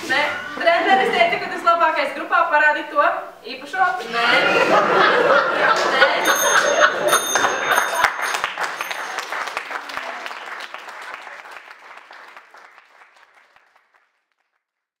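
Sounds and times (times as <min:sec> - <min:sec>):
audience applauding: 0:05.4 - 0:14.7.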